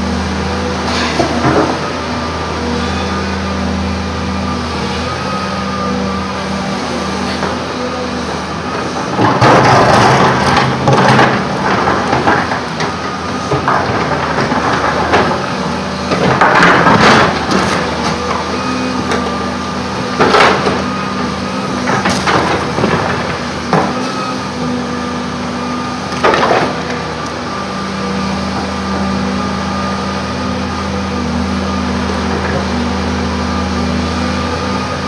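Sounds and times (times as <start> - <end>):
excavator diesel engine running: 0.0 - 35.0.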